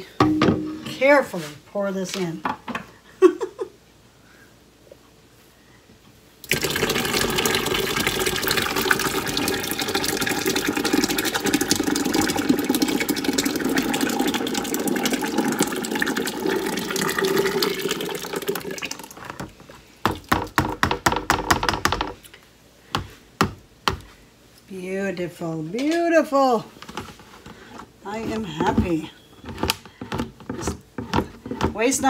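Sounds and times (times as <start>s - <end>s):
thick sauce pouring into pot: 6.5s - 19.2s.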